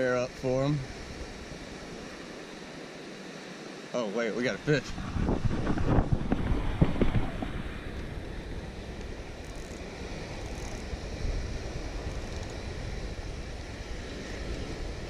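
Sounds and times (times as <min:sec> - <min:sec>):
surf: 0:00.0 - 0:15.0
wind buffeting microphone: 0:04.6 - 0:15.0.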